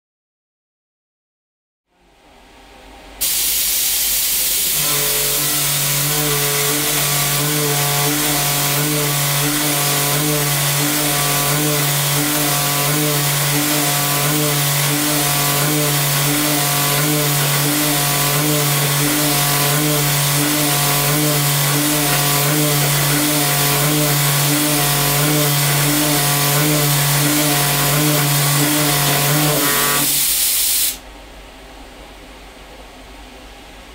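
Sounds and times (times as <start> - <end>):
steady hiss: 3.2 - 4.9
milling machine cutting hum: 4.5 - 30.3.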